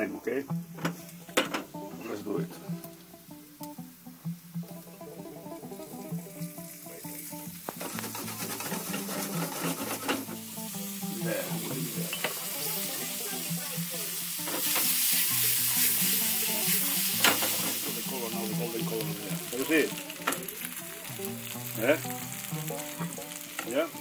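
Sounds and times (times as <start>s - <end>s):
food sizzling in hot oil: 0.0s - 24.0s
stirring clicks and scrapes: 7.7s - 10.4s.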